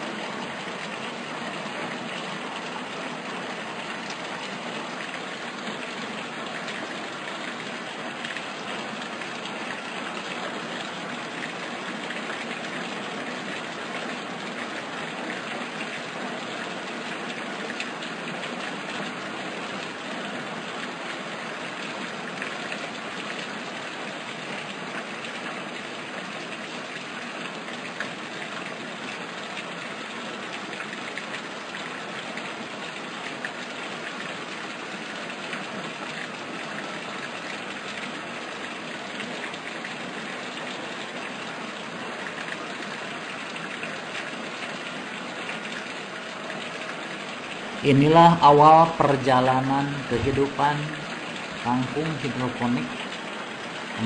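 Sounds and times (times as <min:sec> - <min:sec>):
rushing water: 0:00.0 - 0:54.0.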